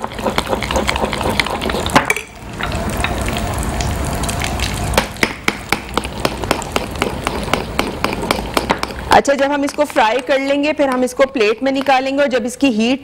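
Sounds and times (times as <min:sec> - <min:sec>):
hot oil sizzling: 0:00.0 - 0:11.2.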